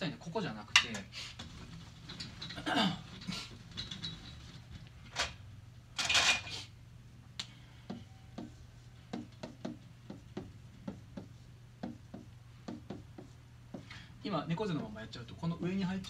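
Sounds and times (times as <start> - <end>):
marker drawing on whiteboard: 7.8 - 14.0
eraser wiping whiteboard: 8.4 - 13.8.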